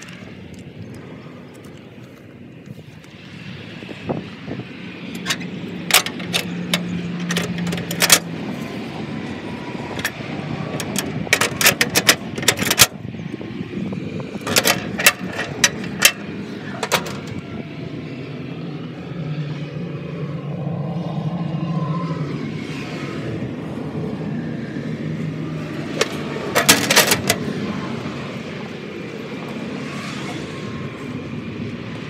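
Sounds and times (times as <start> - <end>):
metal clanks and rattles: 5.1 - 8.4, 9.9 - 13.0, 14.4 - 17.4, 25.8 - 27.6.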